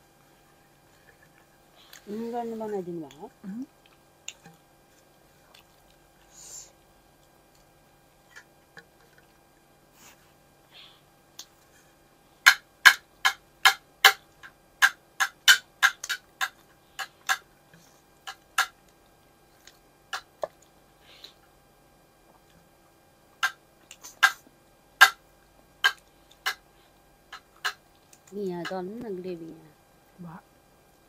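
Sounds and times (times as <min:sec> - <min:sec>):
faint room hum: 0:00.0 - 0:31.0
mouth clicks and smacks: 0:23.4 - 0:25.2.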